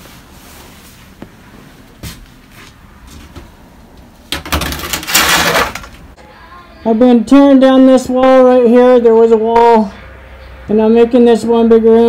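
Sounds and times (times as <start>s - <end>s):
plastic trash bag rustling: 4.6s - 6.2s.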